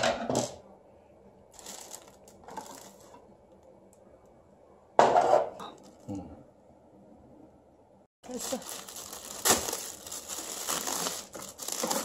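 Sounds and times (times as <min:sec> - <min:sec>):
plastic cover scraping: 0:01.5 - 0:03.3, 0:08.3 - 0:12.0.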